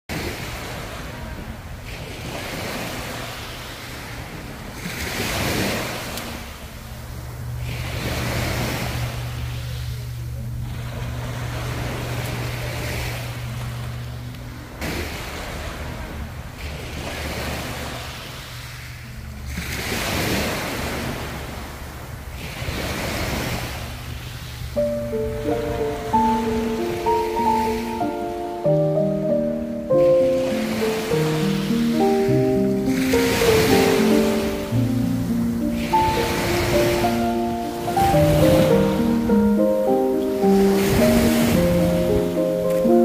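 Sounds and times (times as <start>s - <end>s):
waves washing onto beach: 0.1s - 43.0s.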